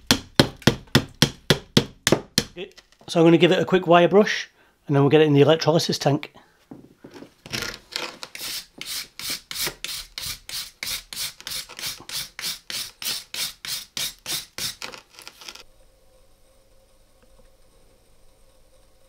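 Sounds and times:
wire brush scrubbing metal: 0:08.3 - 0:15.6.

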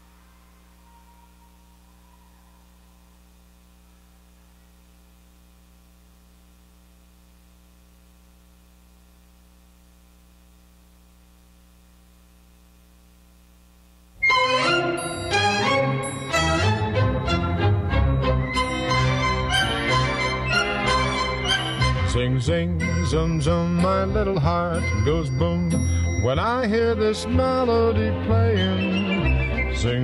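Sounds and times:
faint electrical mains hum: 0:00.0 - 0:30.0
orchestral music with strings: 0:14.2 - 0:22.1.

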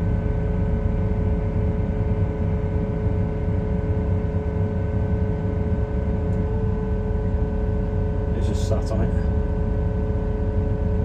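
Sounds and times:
steady whine: 0:00.0 - 0:11.0
diesel engine running: 0:05.7 - 0:09.9.

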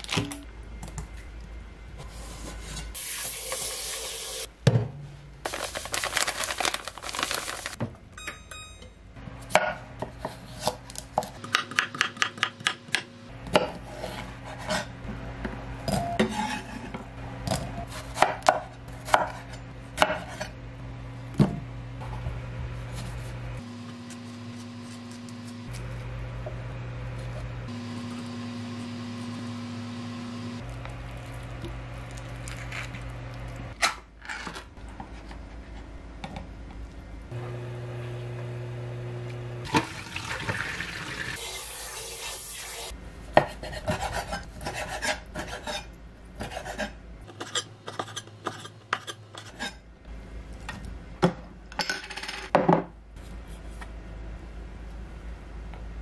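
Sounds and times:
tap water running into pot: 0:39.7 - 0:41.6.

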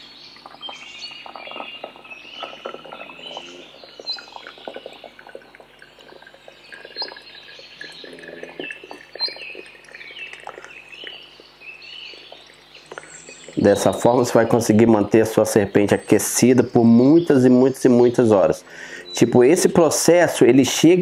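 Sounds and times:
water gurgling into hot-water bottle: 0:00.0 - 0:21.0
high chirping squeaks: 0:06.5 - 0:14.6.

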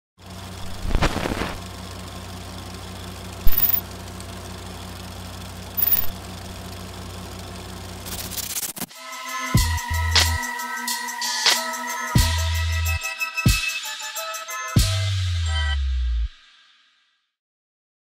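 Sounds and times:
film projector motor hum: 0:00.2 - 0:08.2
short loud noise bursts: 0:00.7 - 0:01.6.

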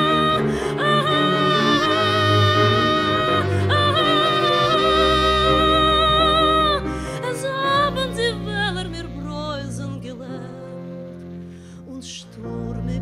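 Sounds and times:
woman singing: 0:00.0 - 0:11.0, 0:11.8 - 0:13.0
bowed double bass: 0:00.0 - 0:13.0.

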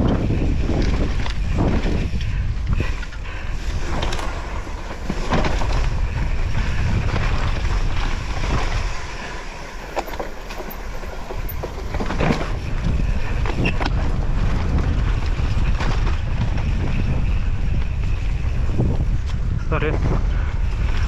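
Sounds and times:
wind buffeting microphone: 0:00.0 - 0:21.0
bike knocks and rattles: 0:03.8 - 0:09.0, 0:09.7 - 0:21.0.

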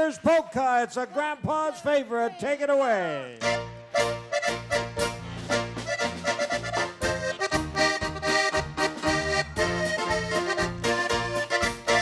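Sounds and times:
accordion playing tune: 0:03.4 - 0:12.0
drum kit steady beat: 0:03.5 - 0:12.0.

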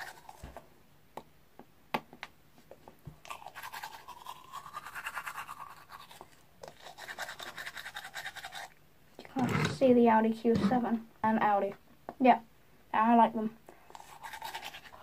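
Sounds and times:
toothbrush scrubbing teeth: 0:00.0 - 0:00.5, 0:03.2 - 0:09.7, 0:13.8 - 0:15.0
toothbrush scrapes and clicks: 0:00.0 - 0:00.6, 0:03.2 - 0:09.8, 0:13.9 - 0:15.0.

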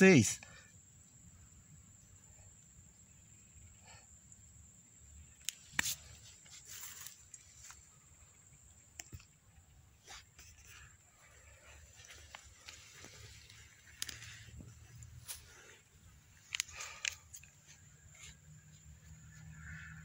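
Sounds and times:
sharp clicks: 0:16.4 - 0:17.6.

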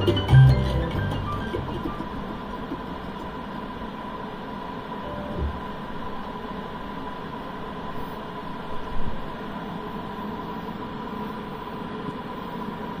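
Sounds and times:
steady hiss: 0:00.0 - 0:13.0
thin high tone: 0:05.0 - 0:05.9.

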